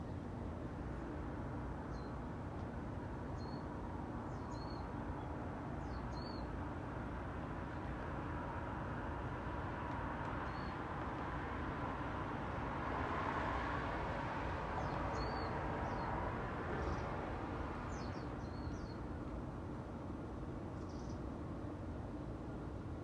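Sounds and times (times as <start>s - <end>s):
distant city traffic hum: 0.0s - 23.0s
car passing: 8.4s - 18.4s
small birds chirping: 14.8s - 16.1s, 16.8s - 17.2s, 17.9s - 19.1s, 20.8s - 21.2s.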